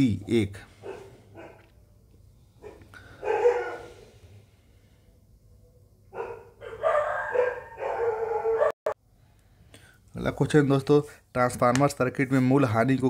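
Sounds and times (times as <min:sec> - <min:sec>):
dog barking: 0:00.8 - 0:01.7, 0:02.6 - 0:04.1, 0:06.1 - 0:09.0.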